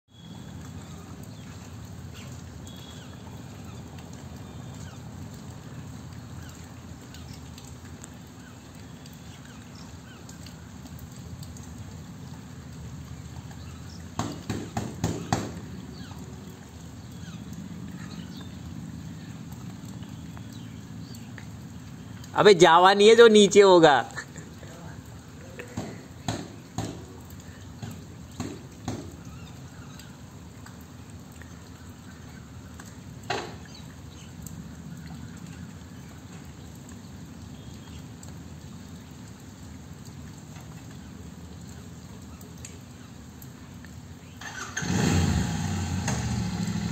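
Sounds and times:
dripping water: 0.1s - 46.9s
rain patter: 0.1s - 46.9s
motorcycle engine rumbling: 44.4s - 46.9s.

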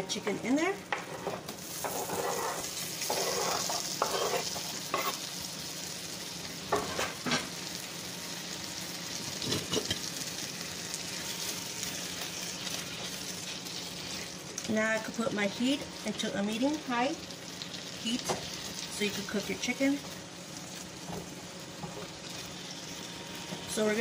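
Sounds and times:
chicken sizzling in frying pan: 0.0s - 24.0s
spoon knocking and scraping pan: 0.9s - 5.2s.

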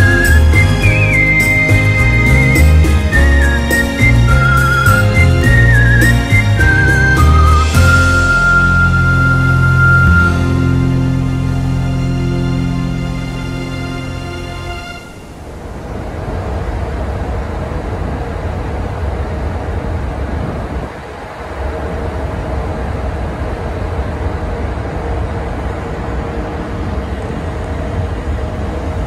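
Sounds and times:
steady engine hum: 0.0s - 29.0s
wind buffeting microphone: 15.3s - 29.0s.

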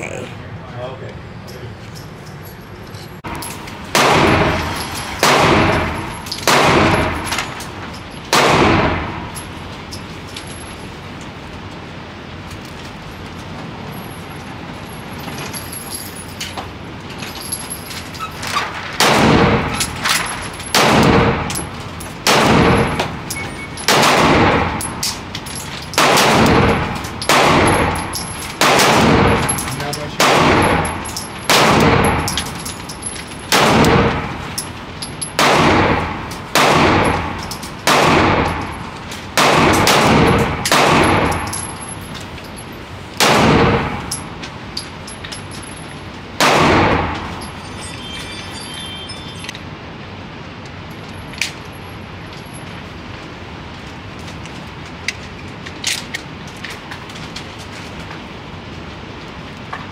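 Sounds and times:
gunshots with echoing tail: 3.3s - 7.4s, 8.3s - 9.4s, 19.0s - 19.8s, 20.7s - 21.6s, 22.2s - 23.2s, 23.9s - 25.0s, 26.0s - 32.4s, 33.5s - 34.4s, 35.4s - 41.5s, 43.2s - 44.1s, 46.4s - 47.3s.

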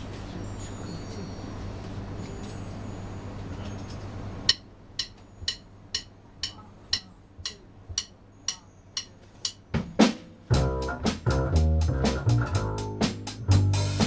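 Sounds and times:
sharp count-in clicks: 4.5s - 9.6s
heavy drum hits: 9.8s - 14.0s
band with bass and guitar: 10.5s - 14.0s.

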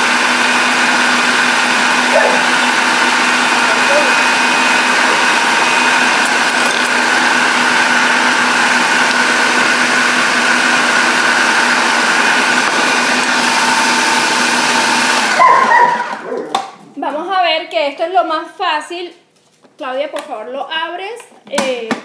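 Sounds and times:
food processor motor whining: 0.0s - 16.7s.

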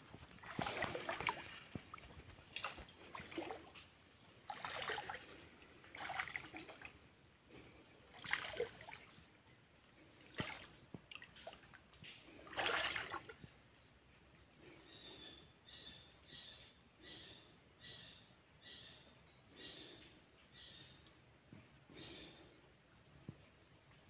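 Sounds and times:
footsteps squelching in mud: 0.0s - 3.9s.

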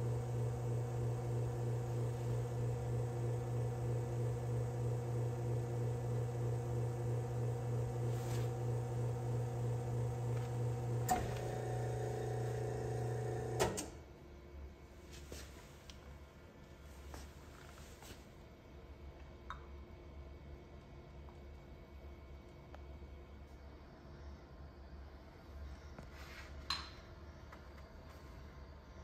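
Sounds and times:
espresso machine pump humming: 0.0s - 13.8s.

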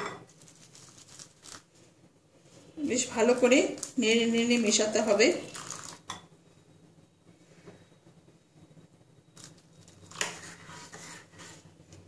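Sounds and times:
metal spoon stirring in bowl: 9.9s - 11.7s.

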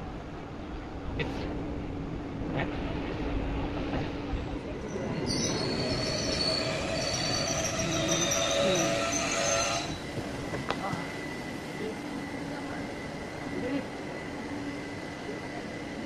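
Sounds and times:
train rumbling slowly: 0.0s - 16.0s
high-pitched squeal of brakes: 4.8s - 10.1s.

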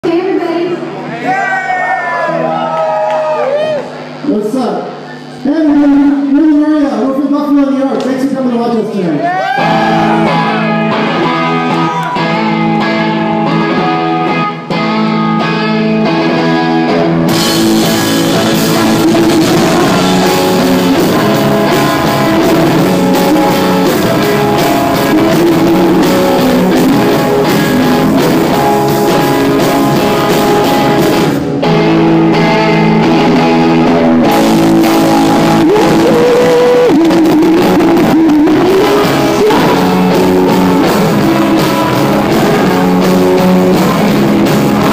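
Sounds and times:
guitar and bass chords: 9.5s - 44.9s
drums and cymbals: 17.3s - 31.5s
woman singing: 35.6s - 40.0s.

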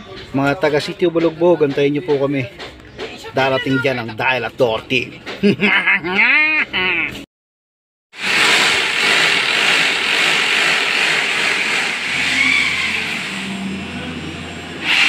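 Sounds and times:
power drill drilling into tile: 8.2s - 13.5s, 14.8s - 15.0s.

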